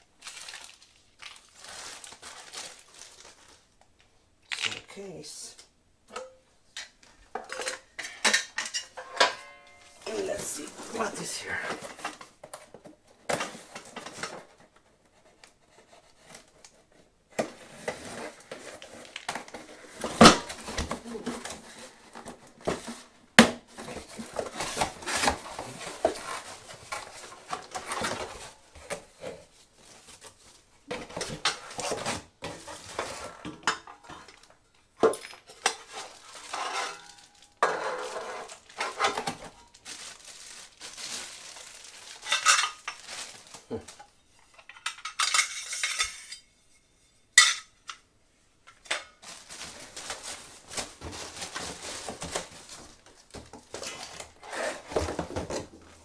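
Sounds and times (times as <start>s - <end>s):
cardboard and packing paper rustling: 0.0s - 3.8s, 9.7s - 34.6s, 35.3s - 44.3s, 48.9s - 56.0s
plastic bag crinkling: 0.0s - 4.7s, 9.8s - 12.4s, 35.5s - 44.2s, 49.2s - 55.7s
metal parts clattering on tiles: 6.2s - 11.4s, 32.9s - 39.6s, 42.1s - 43.1s, 44.5s - 46.5s.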